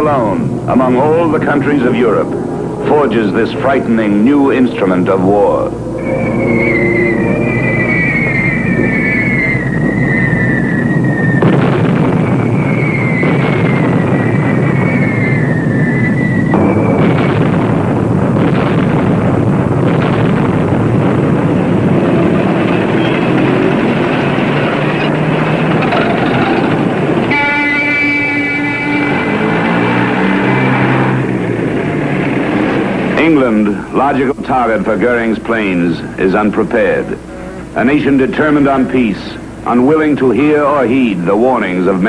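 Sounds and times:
whine falling in pitch: 0.0 - 33.6
propeller plane engines roaring: 0.0 - 42.0.

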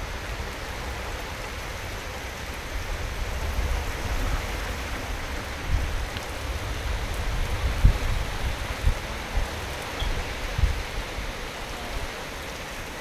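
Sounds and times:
heavy rain falling: 0.0 - 13.0.

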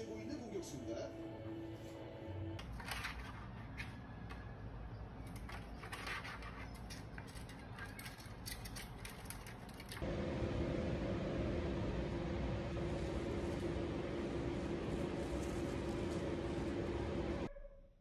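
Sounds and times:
electric fan humming: 0.0 - 17.5
parrot tapping and scratching plastic: 5.2 - 10.0.

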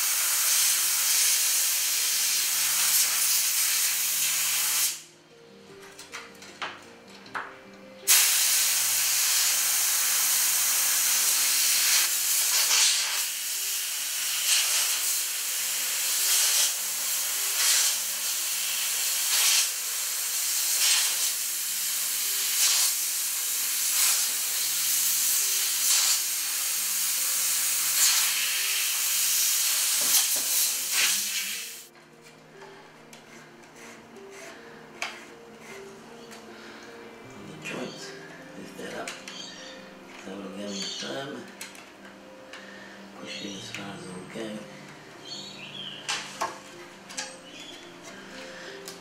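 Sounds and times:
compressed air hissing from hose: 0.0 - 5.0, 8.0 - 31.9.

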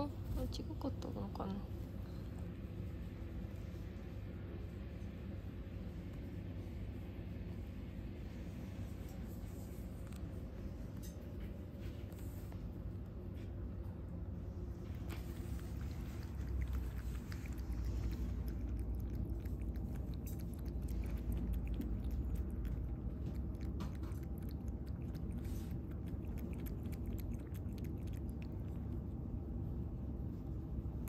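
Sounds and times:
low background rumble: 0.0 - 31.0
cat lapping water: 14.7 - 30.2.

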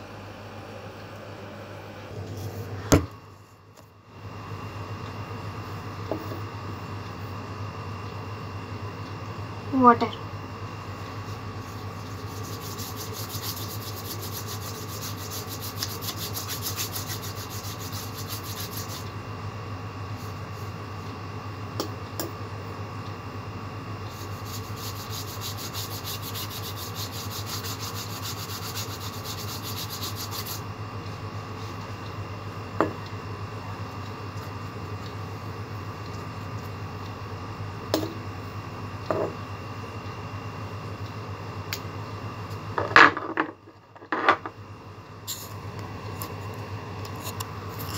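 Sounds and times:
steady low hum: 0.0 - 47.9
paintbrush scrubbing paper: 11.6 - 19.1, 24.1 - 30.6.

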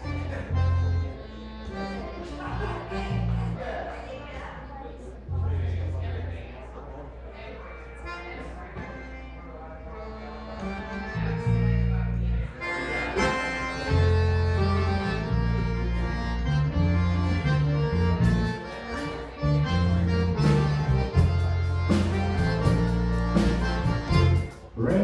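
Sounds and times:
electric bass: 0.0 - 3.6, 5.3 - 6.4, 10.5 - 25.0
accordion melody: 0.0 - 3.8, 7.6 - 25.0
fiddle: 7.6 - 24.7.

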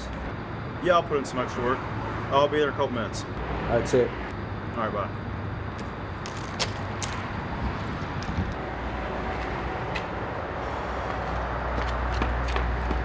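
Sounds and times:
distant road traffic rumble: 0.0 - 13.0.

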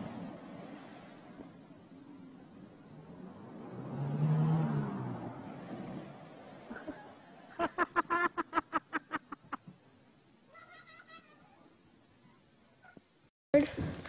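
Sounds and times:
low engine hum: 0.0 - 7.7
car splashing through water: 0.0 - 7.8
person laughing high-pitched: 10.5 - 11.6.

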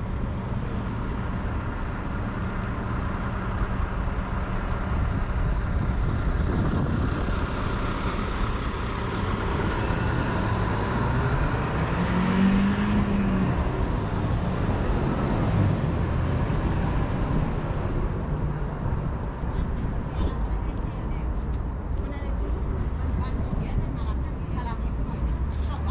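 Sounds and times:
passing vehicle engine: 0.0 - 20.6
traffic road noise hum: 0.0 - 25.9.

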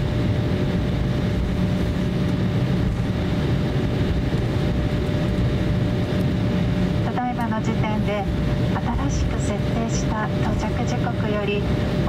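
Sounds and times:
faint steady whine: 0.0 - 12.0
jet cabin rumble: 0.0 - 12.0.

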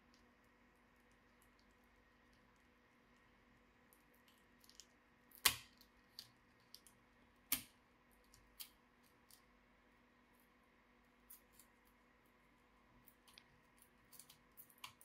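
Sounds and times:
small clicks and taps of parts: 13.1 - 15.0.

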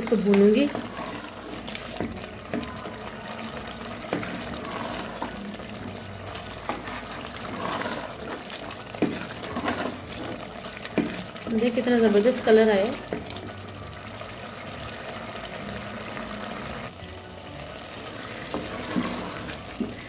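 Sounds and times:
spoon stirring wet mixture: 0.0 - 13.7, 17.9 - 20.0
food sizzling: 0.0 - 20.0.

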